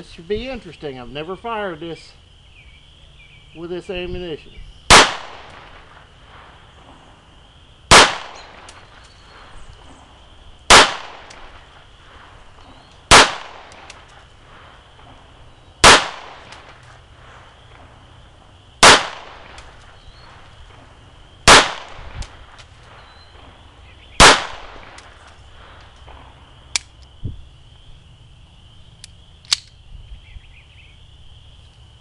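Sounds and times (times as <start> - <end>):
pistol shots echoing: 4.9 - 6.0, 7.9 - 8.9, 10.7 - 11.6, 13.1 - 14.1, 15.8 - 16.8, 18.8 - 19.8, 21.4 - 25.2.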